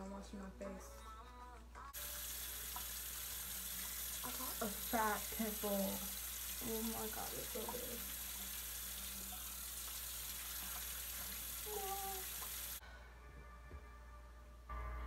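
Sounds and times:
tap running into a sink: 0:02.4 - 0:04.3, 0:07.2 - 0:08.6.

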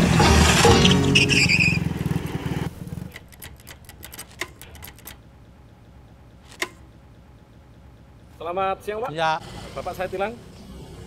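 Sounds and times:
motorcycle engines idling: 0:00.0 - 0:11.0
sharp clicks and ticks: 0:02.9 - 0:05.3.

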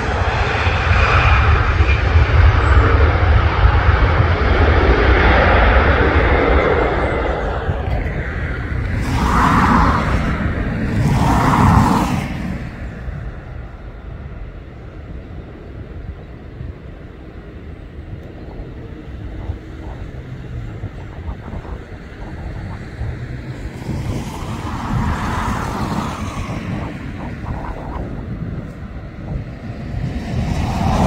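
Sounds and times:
low engine rumble: 0:00.0 - 0:31.0
vehicle passing by: 0:19.0 - 0:31.0.

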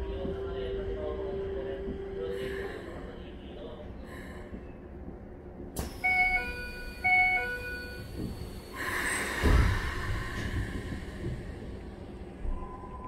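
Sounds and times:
train door chime: 0:05.8 - 0:08.4
train doors closing thump: 0:09.3 - 0:11.4.

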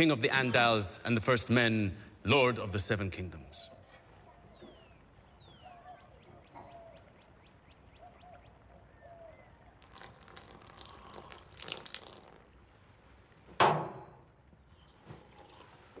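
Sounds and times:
birds chirping: 0:03.6 - 0:11.6, 0:14.3 - 0:15.8
lower bird calls: 0:04.2 - 0:09.9
splashing water: 0:09.8 - 0:12.6.

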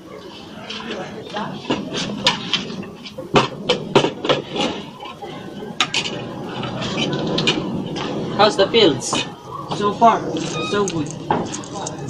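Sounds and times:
plates and cutlery clinking: 0:00.3 - 0:08.2.

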